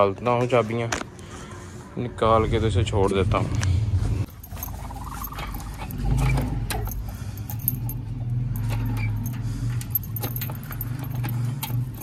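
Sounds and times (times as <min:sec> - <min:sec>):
keys jangling against padlock: 0:04.3 - 0:12.0.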